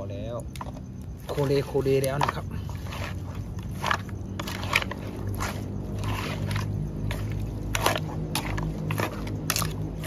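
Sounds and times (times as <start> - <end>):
low steady hum: 0.0 - 10.0
wet squishing strokes: 0.6 - 10.0
metal spatula scraping metal pot: 2.0 - 10.0.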